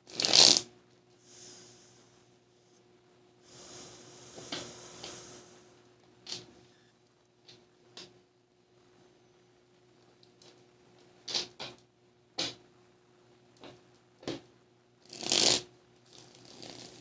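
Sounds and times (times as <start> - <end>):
cards shuffling: 0.1 - 0.6.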